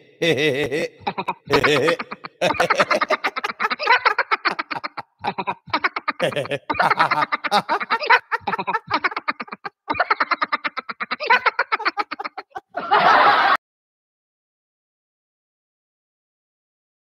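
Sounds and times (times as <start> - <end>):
man laughing hard: 0.0 - 13.6.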